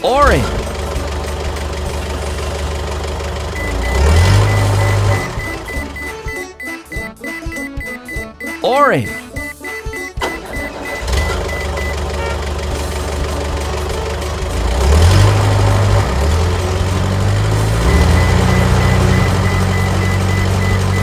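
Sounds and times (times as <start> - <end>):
cartoon truck engine revving: 0.0 - 21.0
faint high beeping: 3.6 - 12.0, 17.9 - 21.0.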